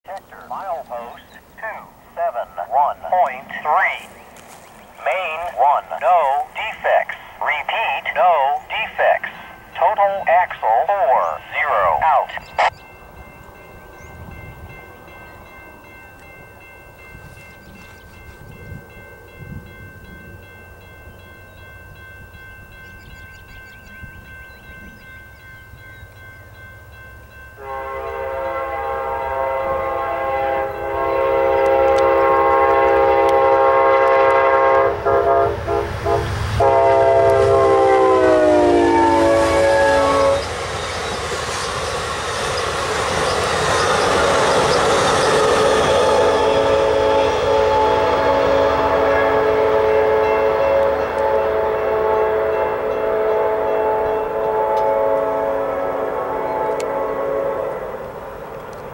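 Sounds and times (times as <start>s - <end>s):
train cars rumbling and clattering: 2.8s - 58.9s
locomotive air horn blasts: 27.6s - 40.6s, 44.0s - 58.0s.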